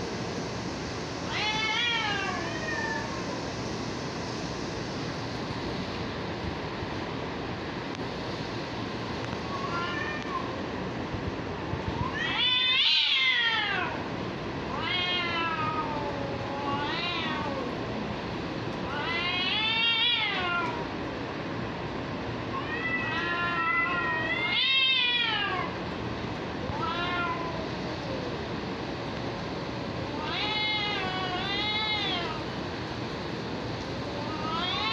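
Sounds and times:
cats yowling: 0:01.3 - 0:03.4, 0:09.4 - 0:10.6, 0:11.8 - 0:14.1, 0:14.7 - 0:17.9, 0:18.8 - 0:21.0, 0:22.5 - 0:25.8, 0:26.6 - 0:28.5, 0:30.0 - 0:32.6, 0:33.9 - 0:34.9.

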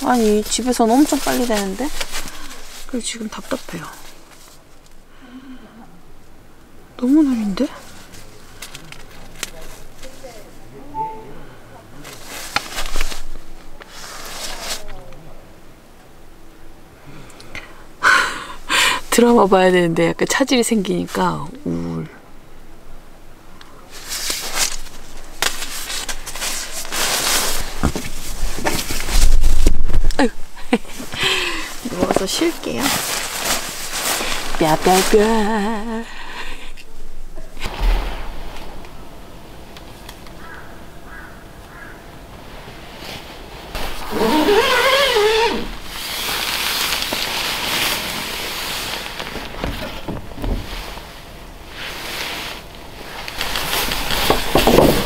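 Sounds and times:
nylon clothing rustling: 0:00.0 - 0:04.8, 0:12.1 - 0:14.9, 0:23.9 - 0:36.0, 0:41.7 - 0:55.0
brief wavering call: 0:10.9 - 0:11.6.

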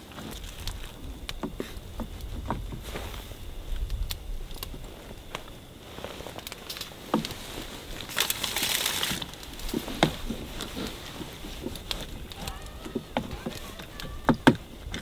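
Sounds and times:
rustling hiss: 0:00.0 - 0:15.0
clicks and knocks of handling: 0:06.4 - 0:15.0.

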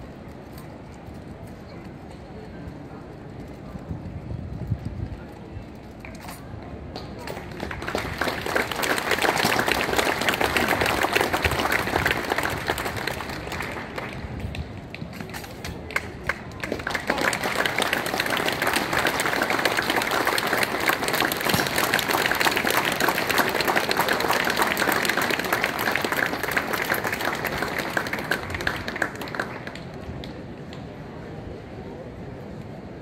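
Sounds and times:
crowd applauding: 0:07.3 - 0:14.9, 0:15.7 - 0:30.4.

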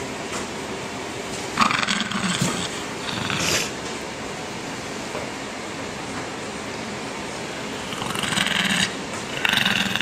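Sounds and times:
dog growling: 0:01.6 - 0:03.8, 0:07.8 - 0:10.0.

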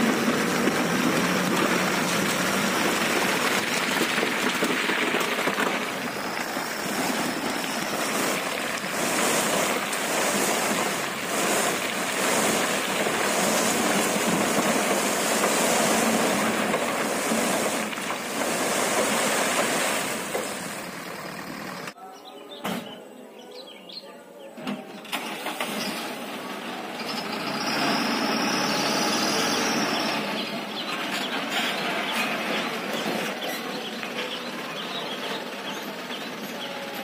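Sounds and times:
rocks and soil pouring from truck: 0:00.0 - 0:21.8.

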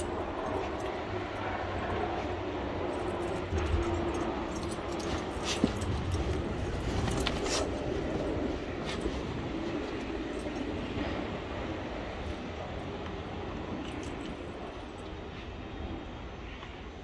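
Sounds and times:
light metallic jingles: 0:00.0 - 0:11.2, 0:13.6 - 0:15.5
dogs playing in snow: 0:00.0 - 0:15.6
low rumble of wind: 0:00.0 - 0:17.0.

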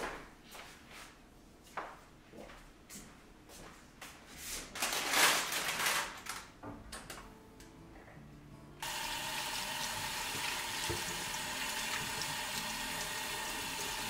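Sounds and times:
rustling and handling: 0:04.1 - 0:06.6
tap water running: 0:08.8 - 0:14.0.

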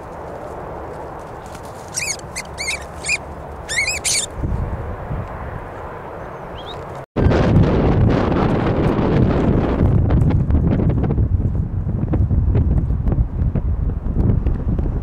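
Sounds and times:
wind noise on microphone: 0:01.5 - 0:05.8, 0:06.6 - 0:15.0
high-pitched wavering animal calls: 0:01.9 - 0:04.3.

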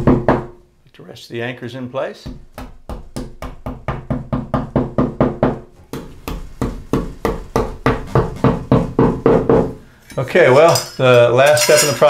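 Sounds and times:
hammer tapping wall anchors: 0:02.2 - 0:09.8.

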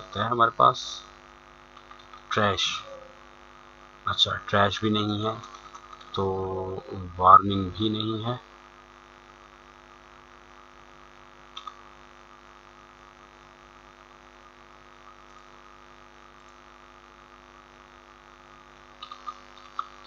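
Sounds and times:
electrical mains hum: 0:00.0 - 0:20.0
computer mouse clicks: 0:01.7 - 0:02.3, 0:05.4 - 0:06.2, 0:11.5 - 0:11.8, 0:19.0 - 0:20.0.

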